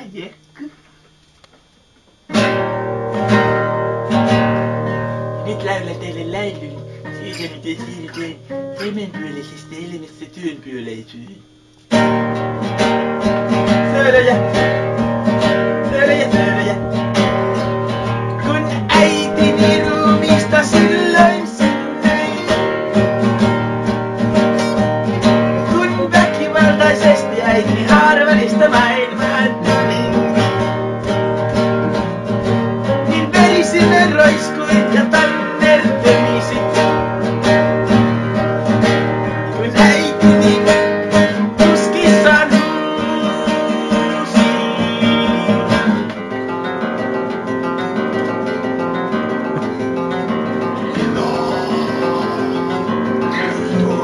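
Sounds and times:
acoustic guitars strummed: 2.2s - 54.0s
man singing: 5.4s - 10.5s, 13.7s - 17.3s, 18.3s - 23.5s, 24.4s - 30.7s, 32.9s - 37.5s, 39.3s - 46.2s, 50.7s - 54.0s.

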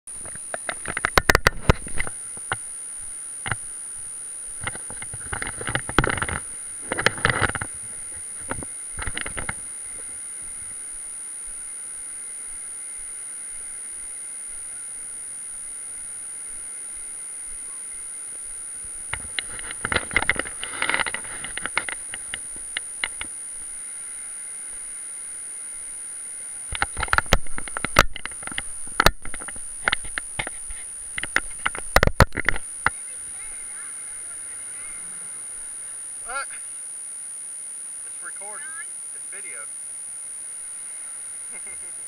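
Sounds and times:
faint high-pitched whine: 0.1s - 42.0s
steady hiss: 0.1s - 42.0s
camera handling noise: 0.2s - 2.6s, 18.8s - 23.4s, 26.7s - 33.0s.

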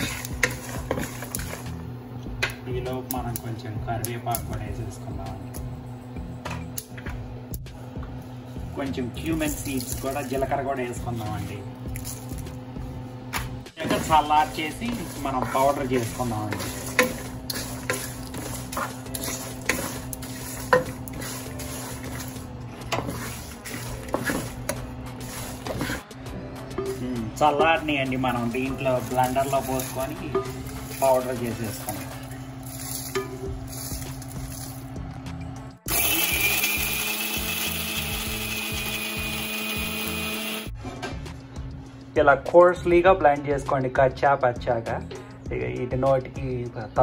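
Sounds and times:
wooden spatula scraping dry-roasting seeds: 0.0s - 1.8s, 13.8s - 26.1s, 26.8s - 34.9s
spatula knocking pan: 13.8s - 21.4s.

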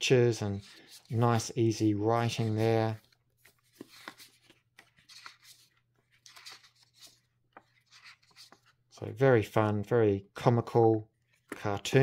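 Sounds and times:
booklet pages flipping: 0.4s - 8.9s, 11.2s - 12.0s.

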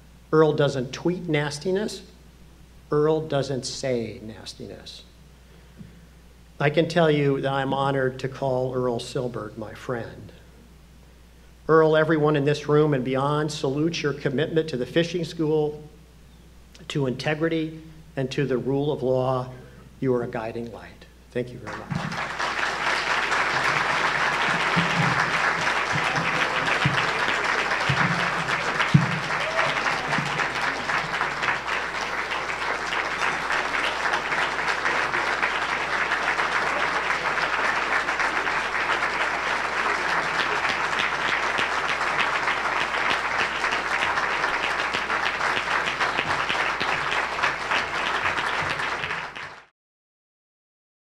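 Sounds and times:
audience applauding: 21.6s - 49.7s.

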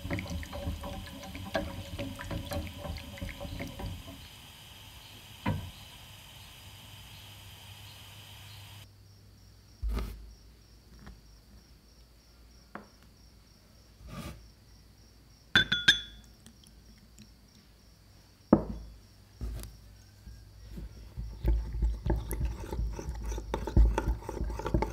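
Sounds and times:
ceramic clinking against glass: 15.6s - 16.2s
dishes knocking on table: 18.6s - 18.8s.

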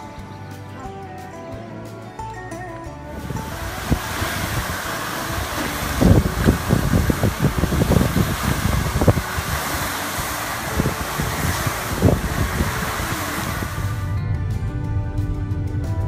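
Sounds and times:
wind buffeting microphone: 3.1s - 16.0s
fountain water splashing into pool: 3.2s - 14.1s.

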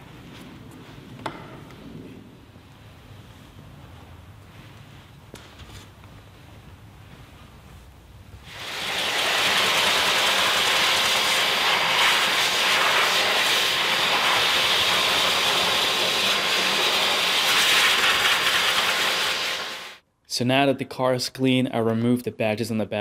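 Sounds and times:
air blower rushing: 8.4s - 20.0s.

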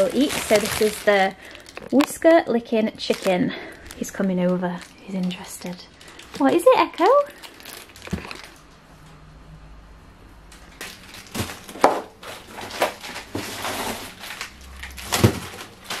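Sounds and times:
plastic packaging crinkling: 0.0s - 8.8s, 10.5s - 16.0s.

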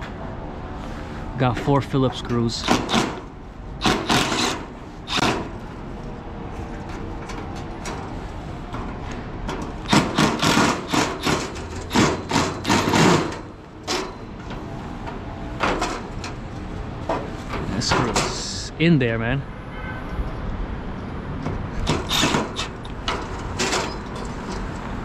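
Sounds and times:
impact driver bursts: 2.6s - 5.6s, 9.9s - 14.0s, 21.8s - 22.8s.

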